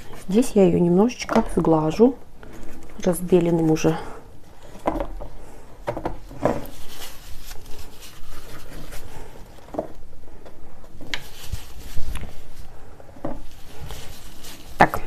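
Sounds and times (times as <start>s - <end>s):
paintbrush bristles rubbing: 6.3s - 9.6s, 11.0s - 15.0s.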